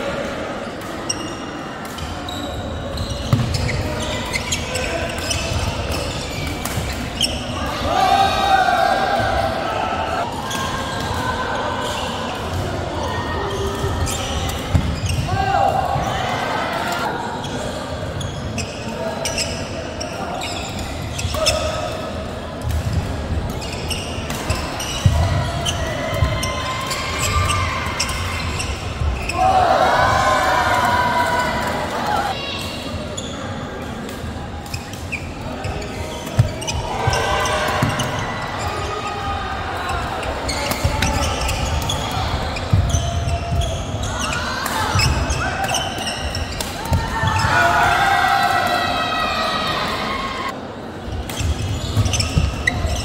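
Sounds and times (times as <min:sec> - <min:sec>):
many voices in large room: 0:00.0 - 0:53.0
shoes squeaking on floor: 0:02.0 - 0:07.6, 0:13.5 - 0:15.4, 0:20.3 - 0:21.6, 0:23.6 - 0:25.8, 0:27.2 - 0:29.4, 0:39.9 - 0:46.6, 0:51.1 - 0:53.0.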